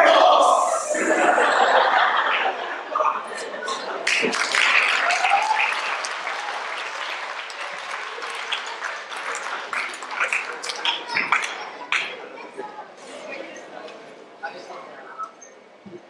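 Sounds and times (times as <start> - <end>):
voices among clapping: 3.7 - 14.0
audience applauding: 4.0 - 12.3.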